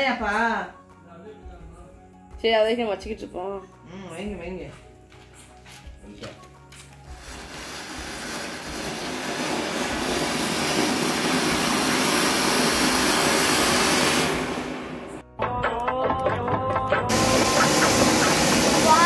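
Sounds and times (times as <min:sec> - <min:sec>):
firework fountain hissing: 0:07.1 - 0:15.2, 0:17.1 - 0:19.0.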